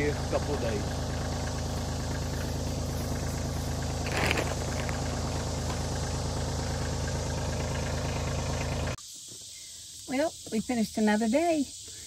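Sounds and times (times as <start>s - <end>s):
tractor engine idling: 0.0s - 9.0s.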